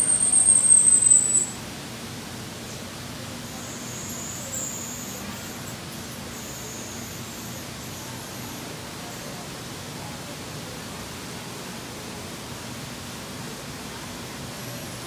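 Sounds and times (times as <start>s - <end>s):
faint high chirps: 0.0s - 1.6s
room noise hiss: 0.0s - 15.0s.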